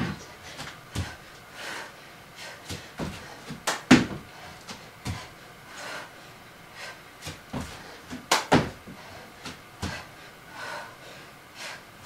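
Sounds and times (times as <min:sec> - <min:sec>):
hands and feet thudding on mat: 0:02.6 - 0:05.3, 0:07.2 - 0:10.1.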